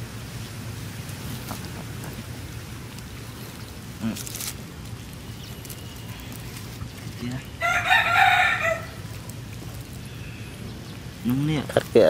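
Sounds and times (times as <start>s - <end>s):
rooster crowing: 7.6s - 9.1s.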